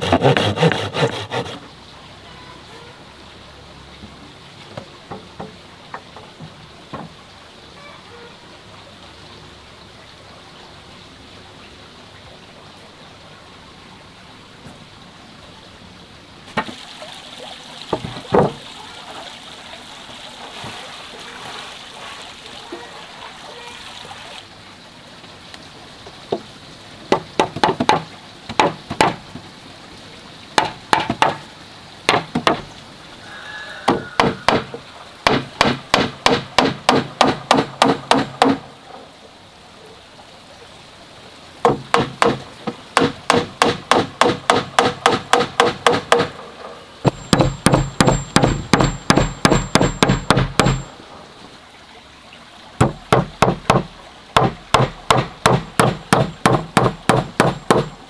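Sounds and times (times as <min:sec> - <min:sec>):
hammer driving nails into wood: 0:47.1 - 0:50.9.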